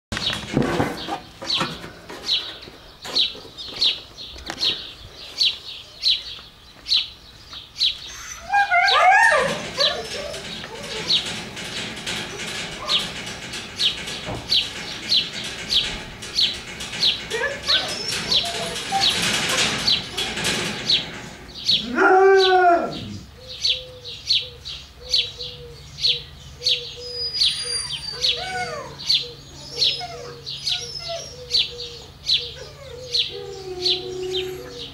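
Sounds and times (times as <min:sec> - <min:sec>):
dogs whining: 0:08.1 - 0:23.3, 0:27.0 - 0:34.9.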